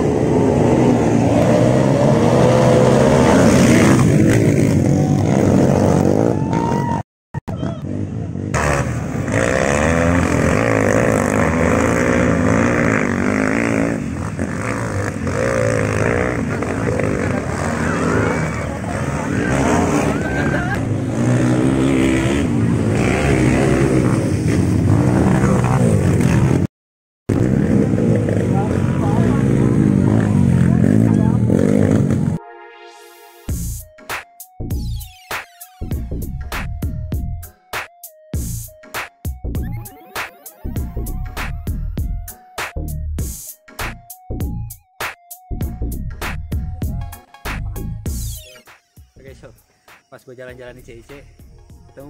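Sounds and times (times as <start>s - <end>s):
dirt bike passing close: 0.0s - 6.9s, 7.6s - 26.7s, 27.3s - 32.4s
dirt bike engines revving: 0.0s - 26.7s, 27.3s - 32.4s.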